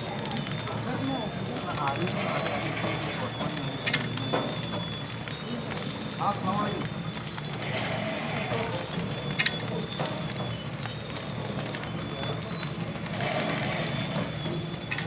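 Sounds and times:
packing machine high whine: 0:00.0 - 0:15.0
sharp clicks of wrapping film: 0:00.0 - 0:15.0.

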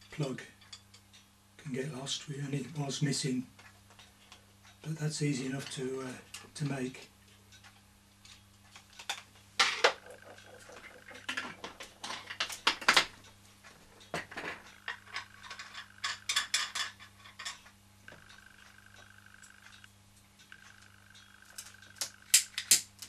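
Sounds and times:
steady low hum: 0:00.0 - 0:23.0
small metal parts clinking: 0:14.4 - 0:17.7.

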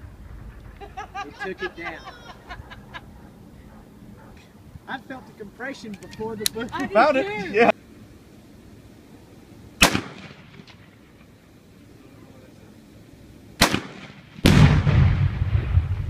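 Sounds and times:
rifle shots cracking: 0:09.8 - 0:11.2, 0:13.6 - 0:15.8
explosion boom and rumble: 0:13.8 - 0:16.0.

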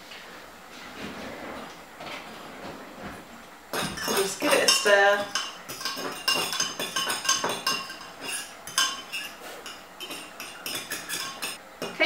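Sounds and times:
metal spoon clinking on glass: 0:03.7 - 0:11.6.

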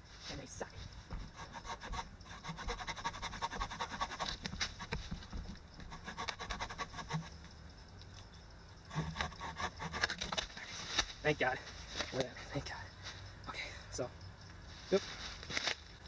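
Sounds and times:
hand saw cutting wood: 0:01.3 - 0:04.9, 0:05.9 - 0:07.3, 0:08.9 - 0:10.4.

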